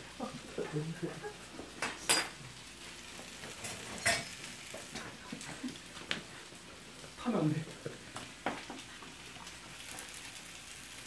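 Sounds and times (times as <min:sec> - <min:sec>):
faint sizzle: 0:00.0 - 0:11.0.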